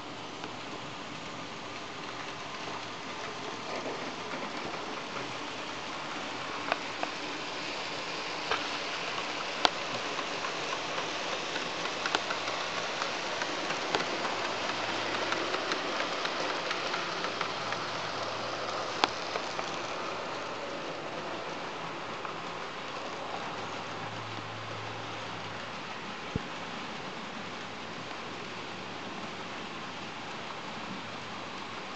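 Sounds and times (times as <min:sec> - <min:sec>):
model train wheels rattling on rail: 0:01.6 - 0:26.0
clicks over rail joints: 0:08.3 - 0:26.6.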